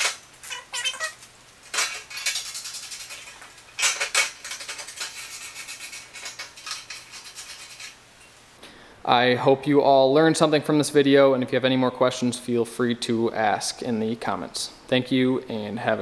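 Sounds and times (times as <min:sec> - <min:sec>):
metal fasteners clicking and rattling: 0:00.0 - 0:08.0.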